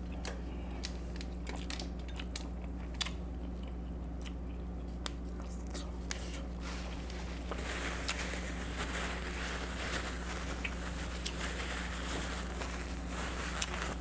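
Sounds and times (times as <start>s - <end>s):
low electrical hum: 0.0s - 14.0s
paper towel rustling and crumpling: 6.2s - 14.0s.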